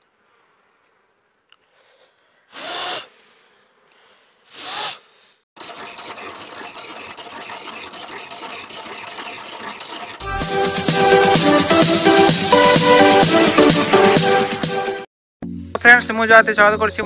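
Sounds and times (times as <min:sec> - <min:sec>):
electronic intro music: 0:10.2 - 0:17.0.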